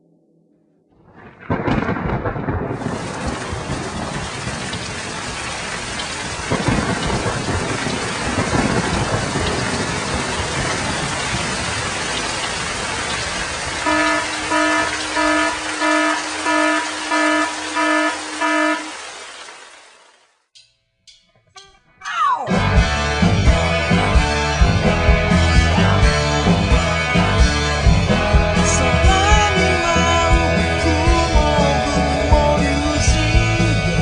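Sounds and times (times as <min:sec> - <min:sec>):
thunder rumbling: 0:00.9 - 0:19.0
heavy downpour: 0:01.1 - 0:20.2, 0:22.6 - 0:34.0
pulsing horn-like tone: 0:13.8 - 0:19.2.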